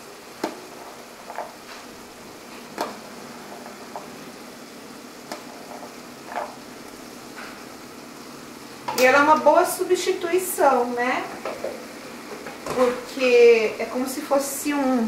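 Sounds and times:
sauce sizzling in frying pan: 0:00.0 - 0:15.0.

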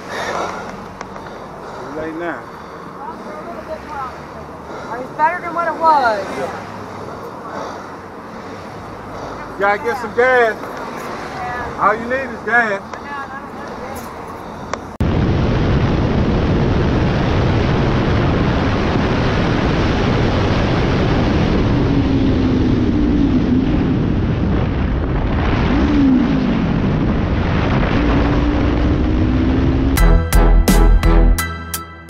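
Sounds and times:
wind rushing over microphone: 0:14.4 - 0:30.0
motorcycle engine: 0:25.8 - 0:30.8.

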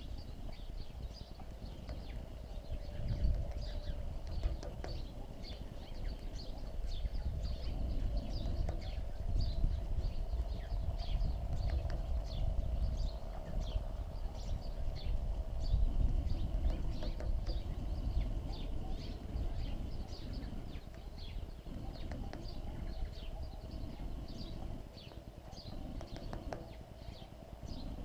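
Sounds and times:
birds chirping: 0:00.0 - 0:28.0
woodpecker pecking on wire cage: 0:03.2 - 0:05.6, 0:20.8 - 0:23.0, 0:25.6 - 0:26.8.

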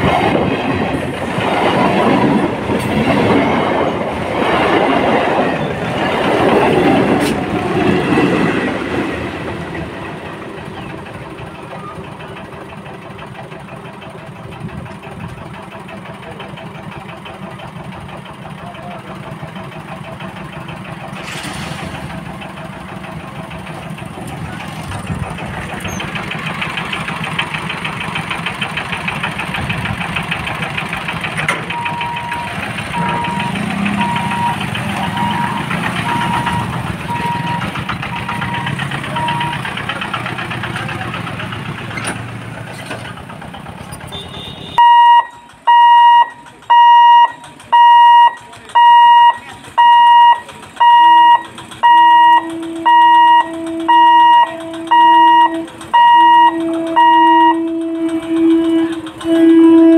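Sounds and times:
train rumble: 0:00.0 - 0:59.9
motorbike engines idling: 0:08.9 - 0:21.2, 0:21.9 - 0:59.9
electronic warning alarm beeping: 0:31.7 - 0:39.6, 0:44.8 - 0:57.7
faint beeping warning tone: 0:31.7 - 0:39.6, 0:44.8 - 0:57.7.

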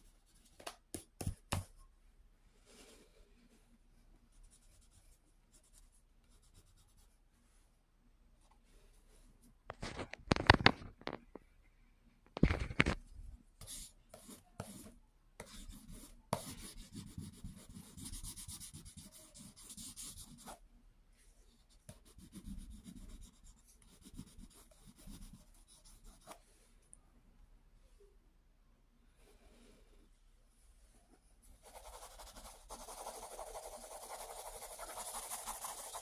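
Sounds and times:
scratchy rubbing on paper: 0:13.6 - 0:20.6, 0:21.7 - 0:26.4, 0:31.6 - 0:36.0.

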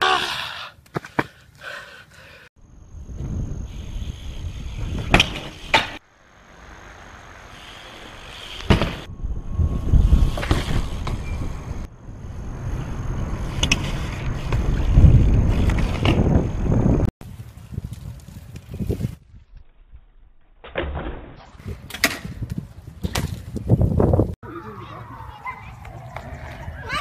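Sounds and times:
bike tyres rolling: 0:00.8 - 0:20.7, 0:21.4 - 0:27.0
bike landing knocks: 0:04.9 - 0:06.0, 0:08.5 - 0:09.1, 0:21.8 - 0:23.7
wind on microphone: 0:08.8 - 0:19.4, 0:21.6 - 0:24.4.

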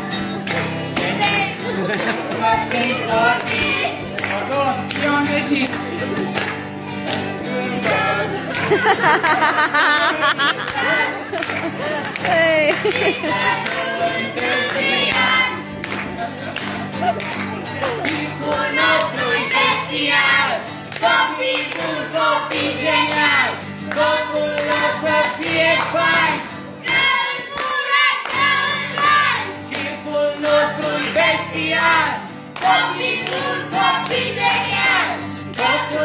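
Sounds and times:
strummed guitar: 0:00.0 - 0:36.0
children singing: 0:00.8 - 0:04.2, 0:12.7 - 0:16.3, 0:17.5 - 0:36.0.

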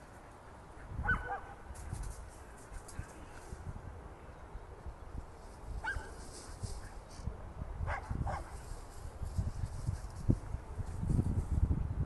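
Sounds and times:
dog barking: 0:01.0 - 0:01.6, 0:05.8 - 0:06.1, 0:07.9 - 0:08.5.

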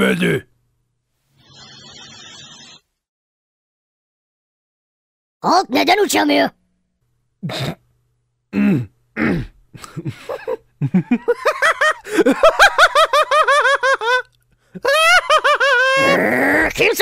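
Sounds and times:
person laughing heartily: 0:09.8 - 0:16.1.

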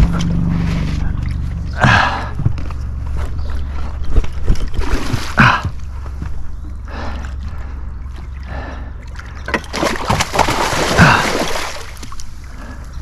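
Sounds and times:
water splashing and sloshing: 0:00.0 - 0:13.0.

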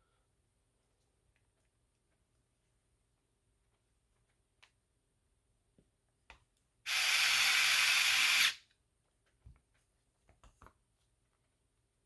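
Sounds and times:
cordless electric screwdriver running: 0:06.9 - 0:08.6.

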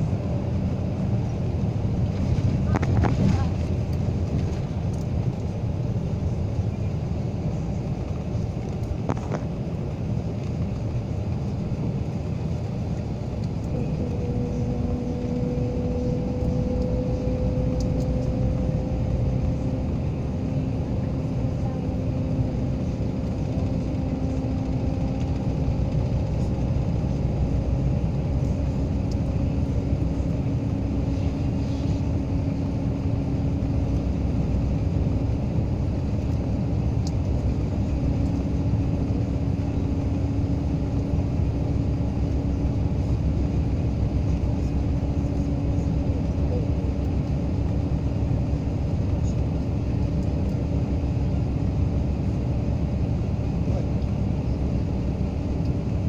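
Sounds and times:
low hum: 0:00.0 - 0:56.0
road and engine noise: 0:00.0 - 0:56.0.

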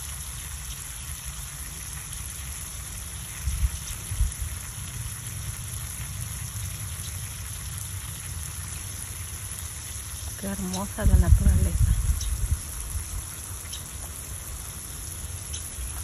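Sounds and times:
steady hiss: 0:00.0 - 0:16.0
low unsteady rumble: 0:10.4 - 0:13.3.

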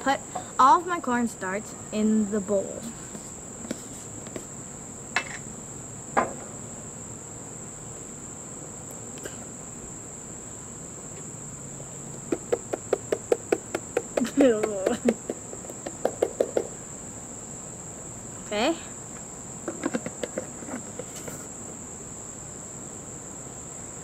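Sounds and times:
insect chorus: 0:00.0 - 0:24.0
quick sharp taps: 0:12.2 - 0:16.7, 0:19.7 - 0:21.2
sharp knocks: 0:12.3 - 0:16.8, 0:19.7 - 0:21.1.

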